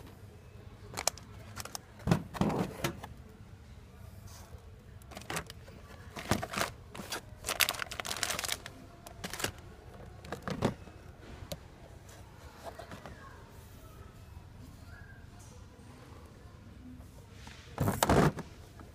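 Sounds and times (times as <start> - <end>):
plastic blister packs crinkling: 0.9 - 1.9, 5.0 - 10.8.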